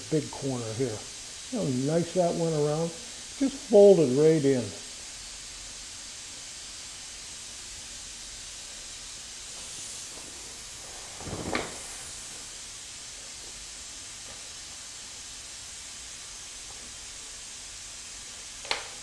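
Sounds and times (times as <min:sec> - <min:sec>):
steady background hiss: 0:00.0 - 0:19.0
rustle and knock: 0:11.0 - 0:12.2.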